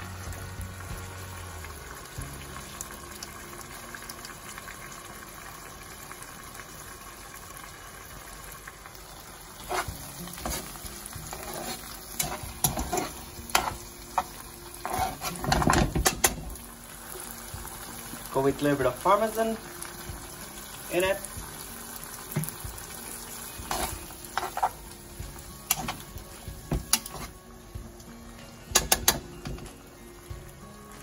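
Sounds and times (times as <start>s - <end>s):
sauce sizzling in a frying pan: 0.0s - 31.0s
metal tongs clacking against pan: 11.3s - 16.5s, 23.7s - 24.8s, 25.6s - 26.1s, 26.8s - 27.3s, 28.7s - 29.7s.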